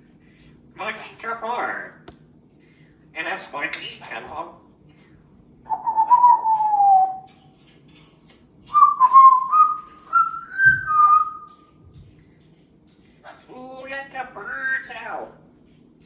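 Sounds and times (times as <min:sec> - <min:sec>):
parrot whistling: 0:05.7 - 0:07.3, 0:08.7 - 0:11.6.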